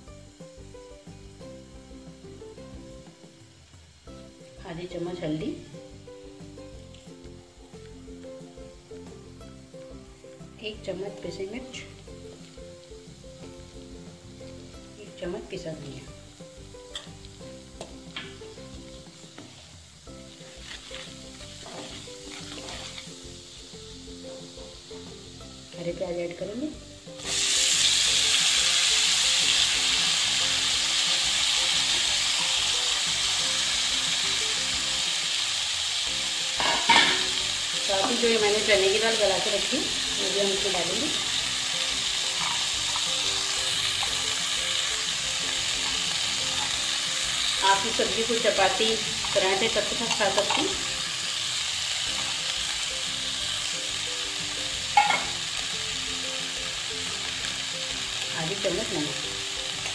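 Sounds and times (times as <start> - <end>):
onions sizzling in oil: 0.0 - 59.9.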